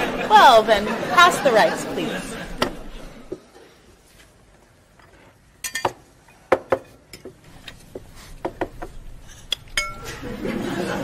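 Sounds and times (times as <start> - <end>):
cutlery clinking on plates: 5.6 - 6.0, 9.4 - 10.3.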